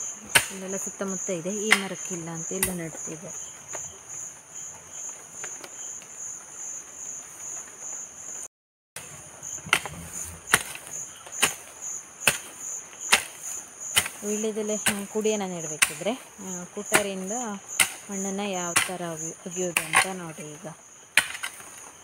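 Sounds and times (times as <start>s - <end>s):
insects chirping: 0.0s - 22.0s
hoe chopping into soil: 0.2s - 0.7s, 9.0s - 15.2s, 15.8s - 16.2s, 16.9s - 17.2s, 17.8s - 18.1s, 18.8s - 19.2s, 19.8s - 20.4s, 21.1s - 21.8s.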